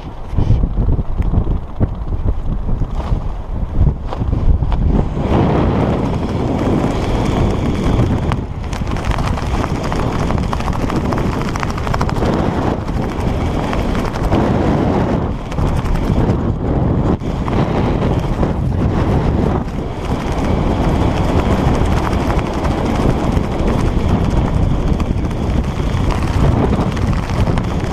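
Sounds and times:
parachute fabric flapping: 0:00.0 - 0:27.9
wind buffeting microphone: 0:00.0 - 0:27.9.

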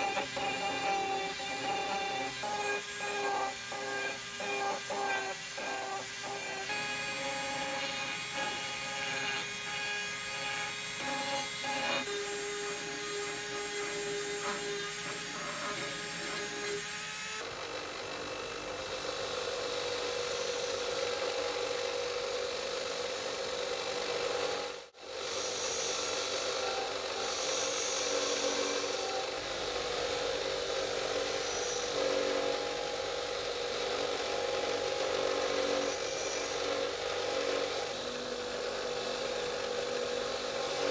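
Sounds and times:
bench grinder grinding steel: 0:00.0 - 0:40.9
rotary tool grinding steel: 0:00.0 - 0:40.9.

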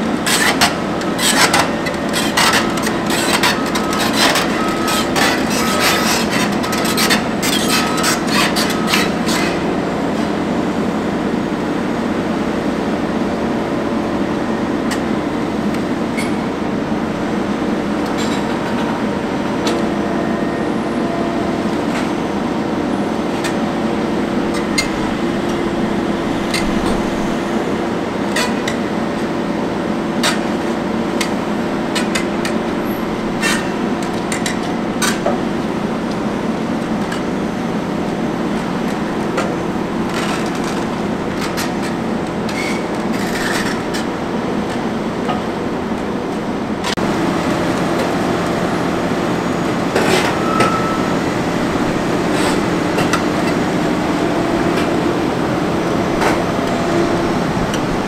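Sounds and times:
hydraulic grab rig running: 0:17.9 - 0:45.3.

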